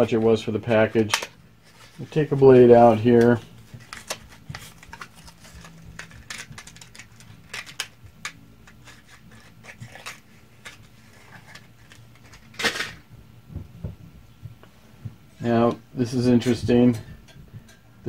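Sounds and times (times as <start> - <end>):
package rustle: 1.0 - 12.8
package clicks and crinkles: 3.8 - 12.8.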